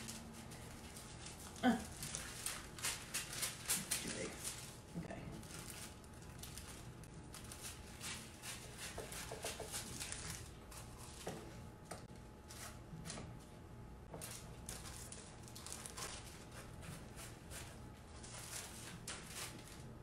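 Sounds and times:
paper rustling: 0:00.0 - 0:04.8, 0:05.4 - 0:11.6, 0:14.1 - 0:19.9
scissors snipping paper: 0:01.1 - 0:04.7, 0:06.3 - 0:11.3.

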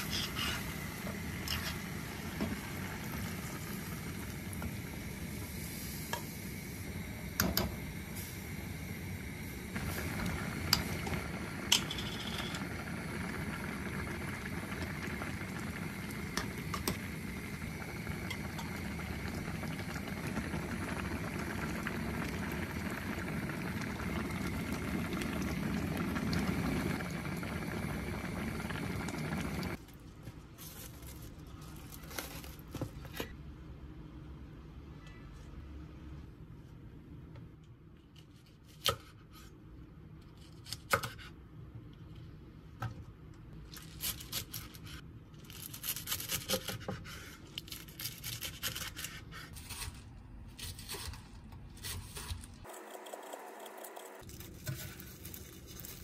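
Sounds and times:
food bubbling on stovetop: 0:00.0 - 0:30.6, 0:52.6 - 0:54.3.

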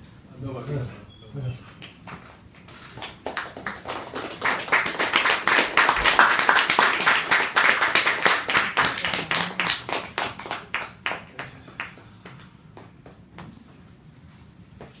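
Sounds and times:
audience applauding: 0:02.0 - 0:13.2.

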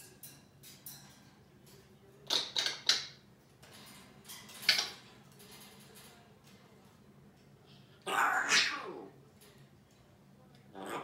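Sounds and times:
parrot making sharp sounds: 0:02.2 - 0:03.2, 0:08.0 - 0:09.1, 0:10.7 - 0:11.0.

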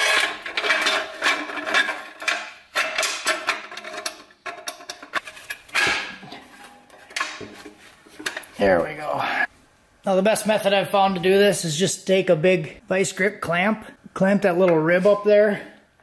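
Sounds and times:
metallic clinking and scraping: 0:00.0 - 0:08.5.

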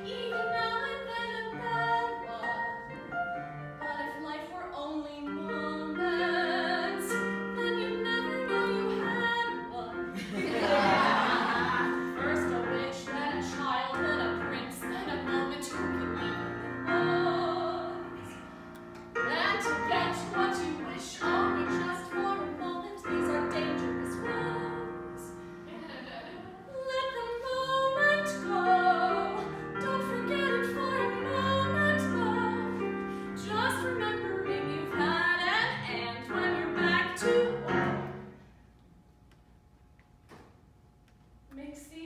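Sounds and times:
woman singing: 0:00.0 - 0:02.9, 0:03.8 - 0:10.1, 0:12.1 - 0:18.0, 0:19.2 - 0:25.3, 0:26.2 - 0:32.8, 0:33.4 - 0:38.0
digital piano accompaniment: 0:00.0 - 0:26.6.

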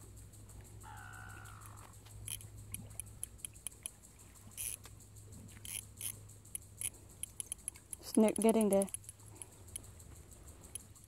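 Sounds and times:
drawn-out animal call: 0:00.8 - 0:03.8
fishing reel clicking: 0:00.9 - 0:04.9, 0:05.5 - 0:09.9.

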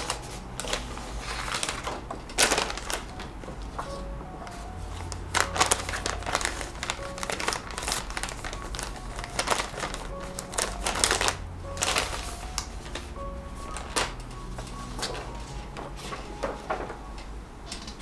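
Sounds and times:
plastic packet crinkling: 0:00.0 - 0:15.5
soft background music: 0:00.0 - 0:18.0.

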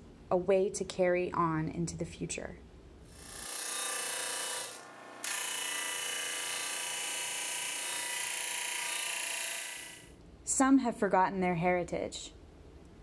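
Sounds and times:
disc sander grinding wood: 0:03.3 - 0:10.0.

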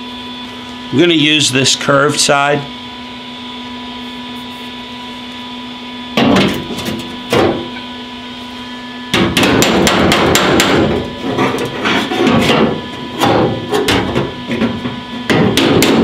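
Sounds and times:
hammer striking metal panel: 0:06.2 - 0:07.7, 0:09.1 - 0:16.0.

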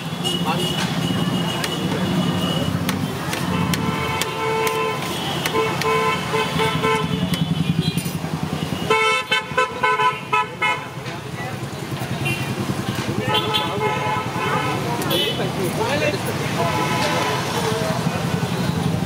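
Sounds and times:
vehicle engines running: 0:00.0 - 0:09.6, 0:10.8 - 0:19.0
vehicle horns honking: 0:00.0 - 0:11.0, 0:12.2 - 0:15.6, 0:16.5 - 0:17.6.

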